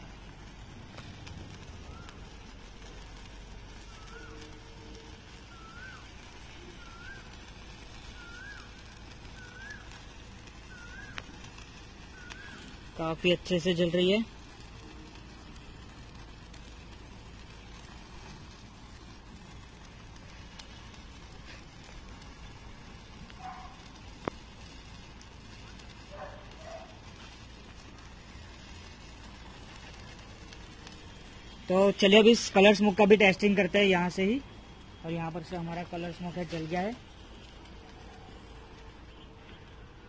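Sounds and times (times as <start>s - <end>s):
sparkler fizzing: 0.0s - 40.0s
dog barks: 23.4s - 23.8s, 26.1s - 27.0s.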